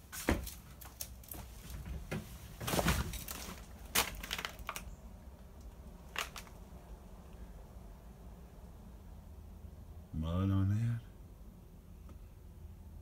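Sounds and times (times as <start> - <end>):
footsteps crunching over debris: 0.0 - 4.9, 6.0 - 6.6.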